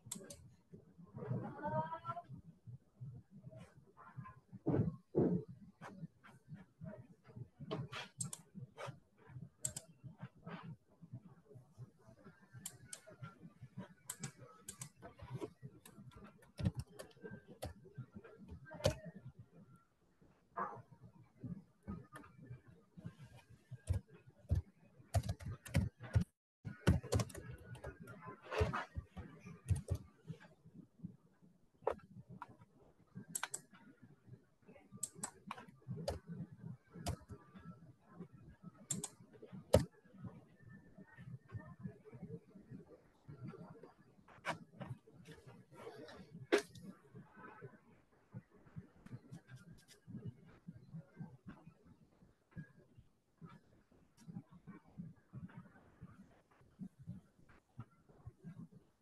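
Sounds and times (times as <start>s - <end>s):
typing on computer keyboard: 16.5s - 17.7s, 23.8s - 28.7s, 29.7s - 30.0s.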